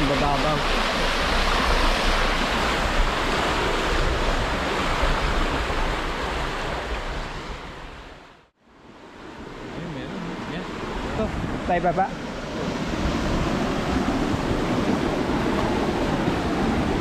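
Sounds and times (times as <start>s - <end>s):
water rushing through outlet: 0.0s - 8.1s.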